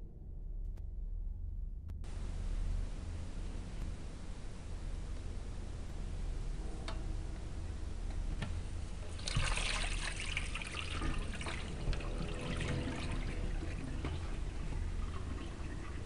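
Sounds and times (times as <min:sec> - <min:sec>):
steady low hum: 0:00.0 - 0:16.0
water splashing and trickling: 0:09.0 - 0:16.0.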